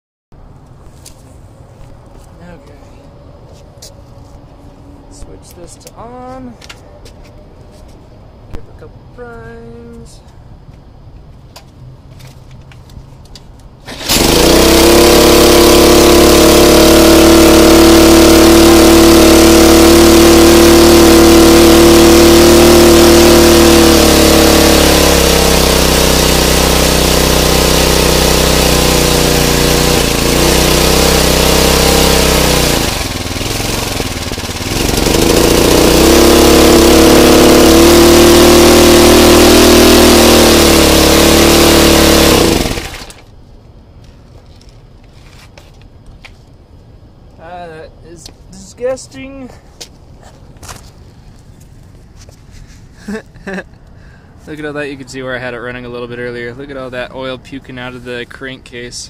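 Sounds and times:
lawn mower engine running: 13.8s - 43.4s.

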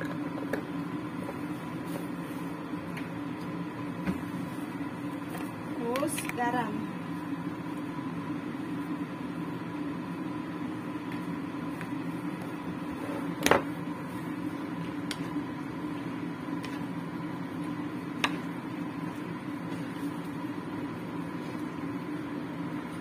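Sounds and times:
thin steady whine: 0.0s - 23.0s.

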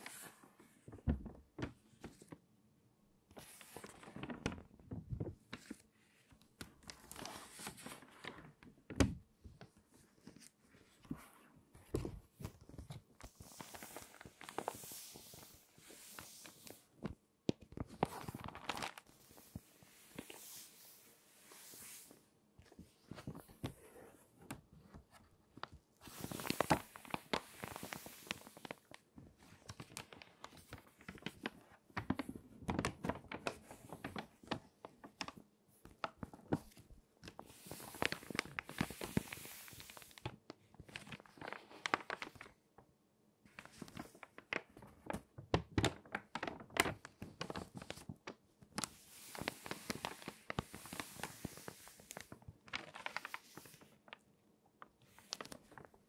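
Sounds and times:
crinkly paper pages turning: 0.0s - 2.4s, 3.3s - 42.6s, 43.5s - 56.0s.

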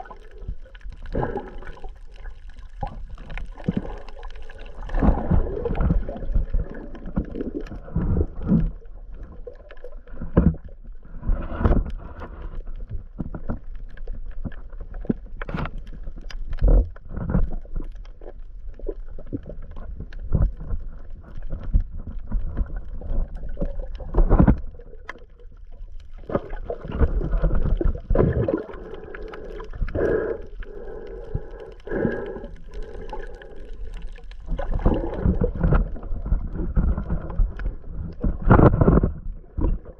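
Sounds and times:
muffled underwater swishing: 0.0s - 9.2s.

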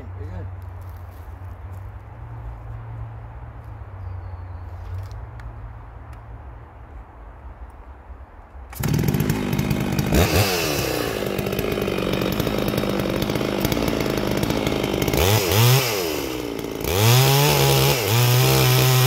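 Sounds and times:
chainsaw revving: 8.7s - 19.0s.

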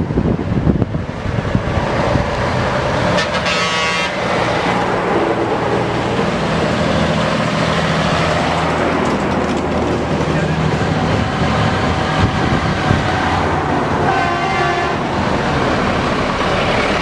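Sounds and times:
diesel lorries driving past: 0.0s - 17.0s
lorry horn: 3.2s - 4.3s, 14.0s - 15.0s.

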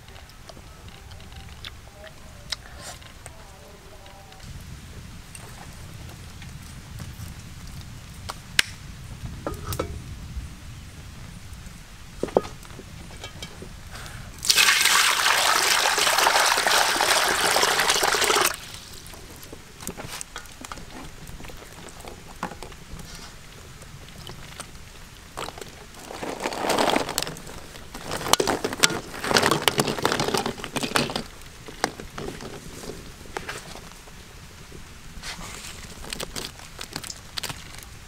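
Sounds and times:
water pouring into metal wok: 14.4s - 19.1s
water splashing: 14.4s - 19.4s.

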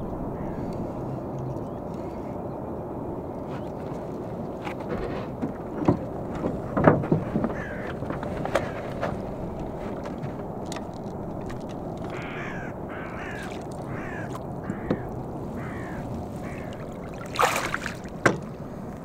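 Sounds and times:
water and wind: 0.0s - 19.0s
crow cawing: 0.3s - 0.8s, 7.5s - 8.0s, 8.6s - 8.8s, 12.0s - 17.2s
splash: 13.3s - 14.4s, 16.4s - 18.5s.

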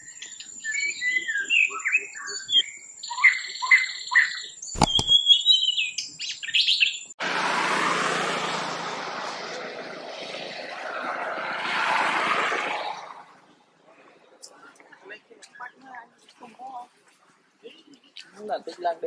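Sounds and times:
small birds chirping: 0.0s - 7.1s
sharp click: 4.8s - 5.2s.

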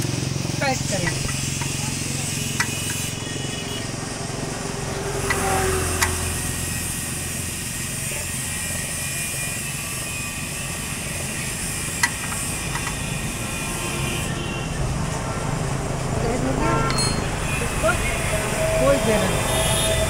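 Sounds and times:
spanner clicking on metal: 1.0s - 1.8s, 2.4s - 3.1s, 6.0s - 6.2s, 11.9s - 13.2s.

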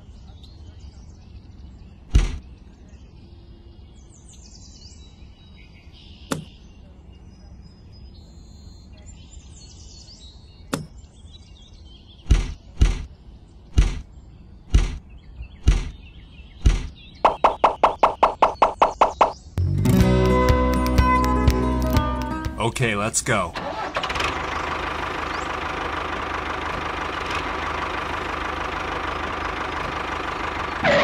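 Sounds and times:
birds chirping faintly: 0.0s - 19.6s, 24.4s - 31.0s
heavy thumps: 13.7s - 14.1s, 14.7s - 15.0s, 15.6s - 16.0s, 16.6s - 19.2s.

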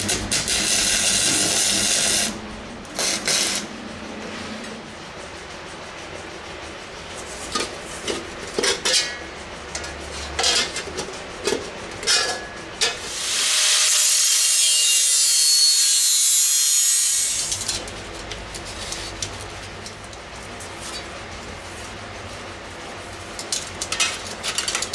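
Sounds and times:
angle grinder grinding steel: 0.0s - 2.4s, 3.0s - 3.7s, 13.1s - 17.7s.

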